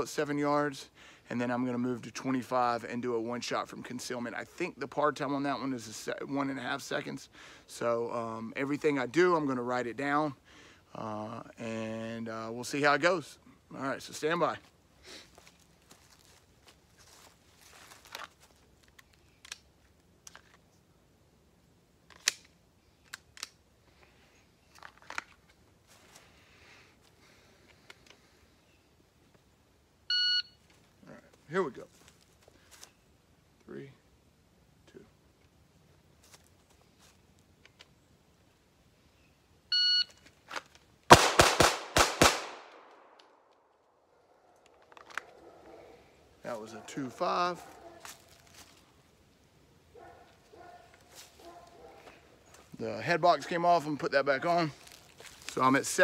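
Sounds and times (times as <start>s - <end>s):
pistol shots with echo: 41.1s - 43.2s.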